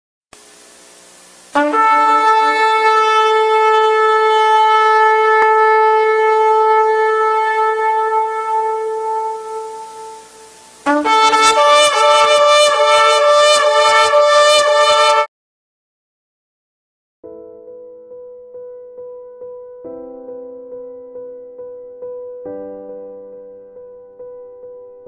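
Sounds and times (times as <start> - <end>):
shofar blasts: 1.6 - 15.3.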